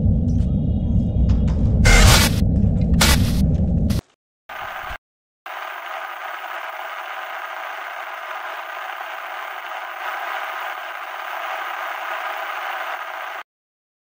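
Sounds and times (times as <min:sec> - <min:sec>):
television static hiss: 0:05.5 - 0:13.4.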